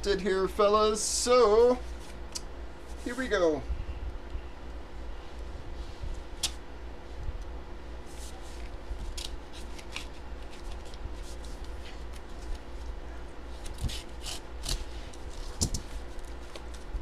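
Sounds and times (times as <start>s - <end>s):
steady low hum: 0.0s - 17.0s
paper crackling and rustling: 8.0s - 17.0s
scissors cutting paper mailer: 8.2s - 12.6s, 13.5s - 17.0s.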